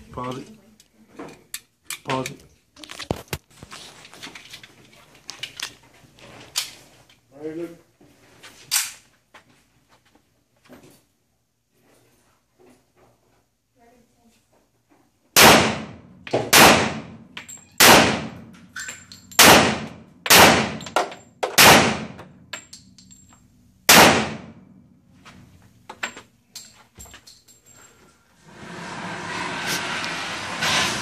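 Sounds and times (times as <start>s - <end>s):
pistol shots echoing: 15.4s - 17.2s, 17.8s - 18.4s, 19.4s - 22.3s, 23.9s - 24.6s.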